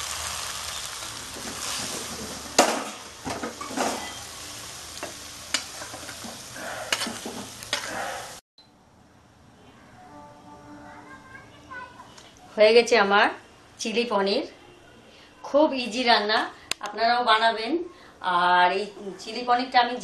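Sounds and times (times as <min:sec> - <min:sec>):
food sizzling in a pan: 0:00.0 - 0:08.4
spatula scraping against pan: 0:03.4 - 0:04.4, 0:05.5 - 0:08.4
pan knocking on burner: 0:05.0 - 0:08.0.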